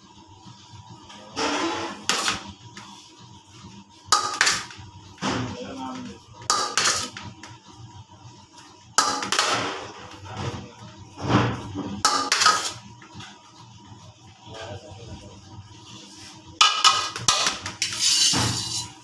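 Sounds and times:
metal spatula scraping metal bowl: 6.5s - 7.2s, 12.1s - 12.8s, 16.6s - 19.0s.

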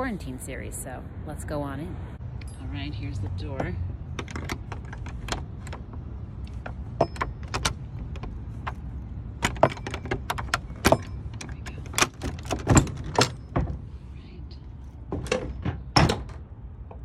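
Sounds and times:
iron door latch clicking and rattling: 4.1s - 13.8s, 15.1s - 17.0s.

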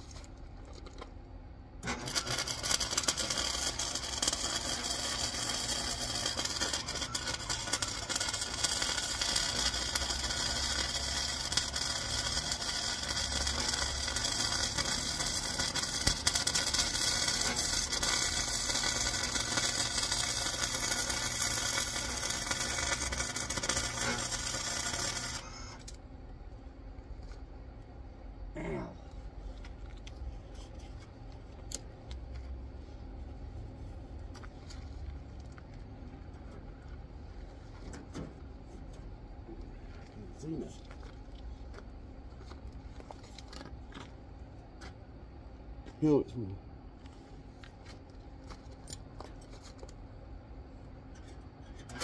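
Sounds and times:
arc welder crackling sizzle: 1.8s - 26.1s, 39.5s - 44.2s, 50.8s - 52.0s.

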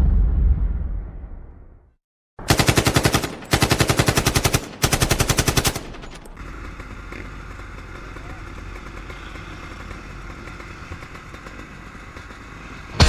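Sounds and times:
deep boom: 0.0s - 2.0s
automatic gunfire bursts: 2.4s - 10.1s.

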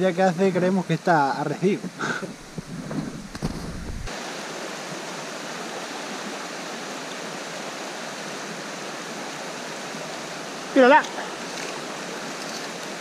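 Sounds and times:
river water rushing: 3.2s - 13.0s.

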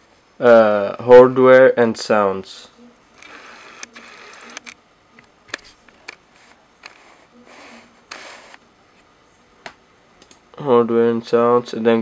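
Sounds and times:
computer mouse clicks: 3.2s - 6.2s
soft rustling of tablet handling: 5.6s - 9.1s.

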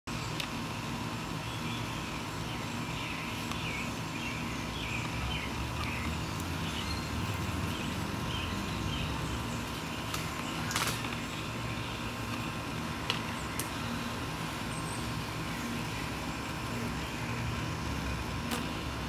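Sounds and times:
steady low hum: 0.1s - 19.0s
bird chirps: 1.4s - 12.6s.

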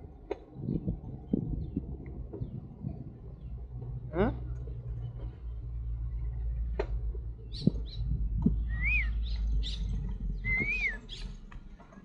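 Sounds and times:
steady low rumble: 0.0s - 12.0s
birds chirping: 0.1s - 12.0s
whistled bird calls: 7.5s - 11.4s.

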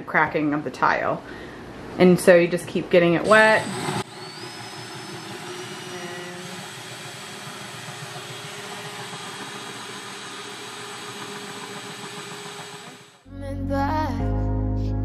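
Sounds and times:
drill grinding into wet tile: 3.2s - 13.2s.

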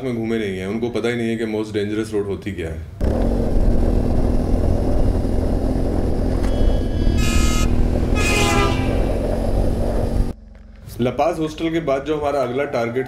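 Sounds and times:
vehicle engine: 3.0s - 10.9s
road rumble: 3.0s - 11.0s
short horn honks: 6.5s - 9.3s.

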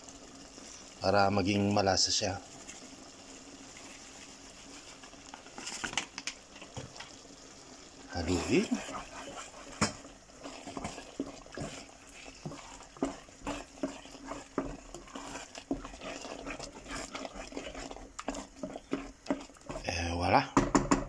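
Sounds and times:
wet squelches of stirring risotto: 0.0s - 21.0s
spoon knocking against pot: 9.8s - 10.0s, 20.5s - 21.0s.

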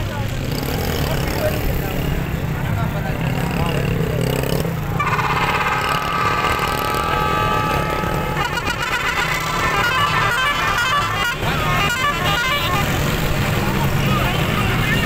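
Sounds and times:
vehicle engines running: 0.0s - 15.0s
long horn blast: 4.8s - 14.8s
wavering high tones: 5.0s - 10.8s.

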